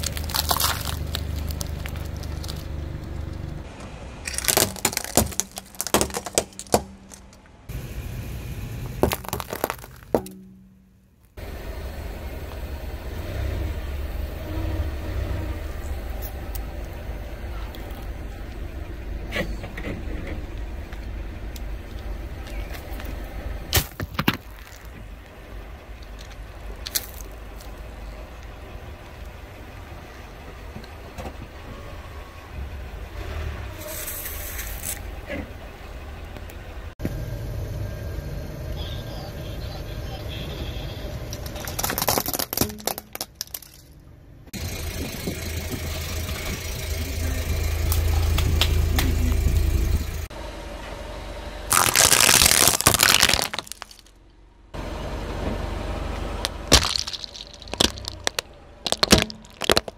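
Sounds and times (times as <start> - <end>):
hard plastic cracking under tyre: 0.0 - 7.4, 8.9 - 10.4, 23.7 - 25.4, 26.0 - 27.8, 41.4 - 43.8, 51.7 - 54.1, 56.4 - 59.9
car low rumble: 0.0 - 59.9.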